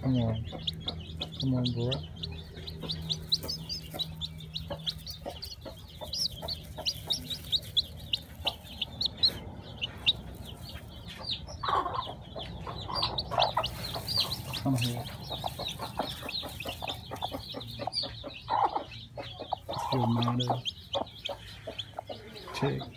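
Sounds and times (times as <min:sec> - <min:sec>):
chick peeping: 0:00.0 - 0:22.9.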